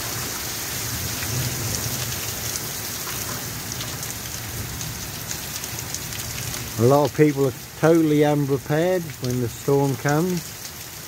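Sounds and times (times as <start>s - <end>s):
heavy rain splashing on road: 0.0s - 11.0s
close drips ticking: 2.5s - 11.0s.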